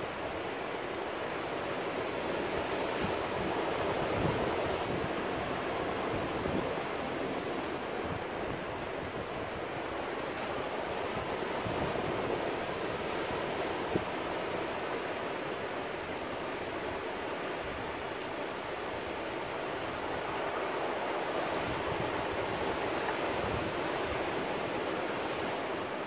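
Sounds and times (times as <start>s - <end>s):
sea surf washing around rocks: 0.0s - 26.0s.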